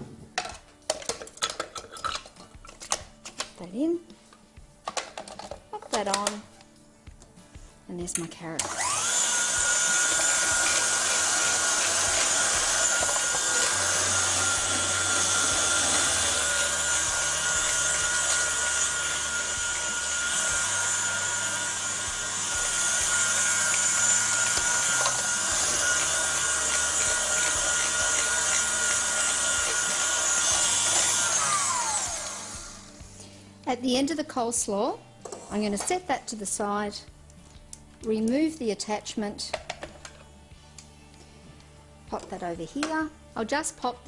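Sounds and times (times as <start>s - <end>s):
stand mixer motor whine: 8.7s - 32.9s.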